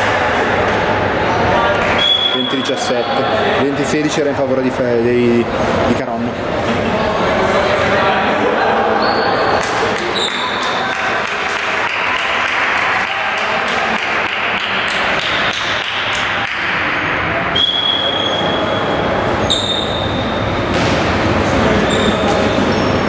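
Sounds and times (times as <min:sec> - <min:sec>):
sports hall noise: 0:00.0 - 0:23.0
high squeaks: 0:17.5 - 0:20.6, 0:21.7 - 0:23.0.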